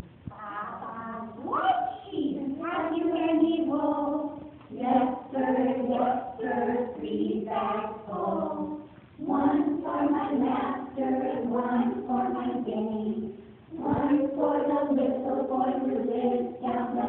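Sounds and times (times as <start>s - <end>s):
voices singing together: 0.3s - 17.0s.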